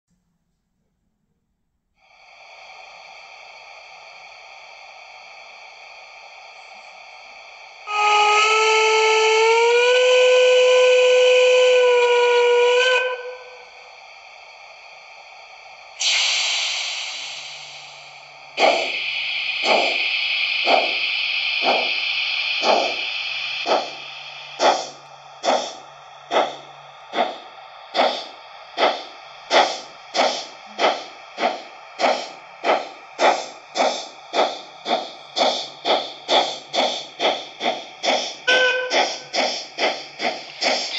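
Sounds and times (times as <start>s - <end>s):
steam exhaust chuffs: 7.7s - 14.4s, 15.9s - 40.9s
steam whistle: 7.9s - 13.8s, 38.5s - 39.3s
burst of steam hiss: 16.0s - 40.9s.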